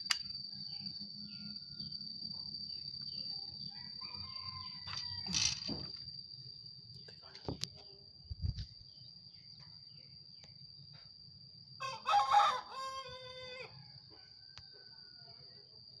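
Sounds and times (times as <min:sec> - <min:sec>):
rooster crowing: 0:03.6 - 0:05.7, 0:11.8 - 0:15.5.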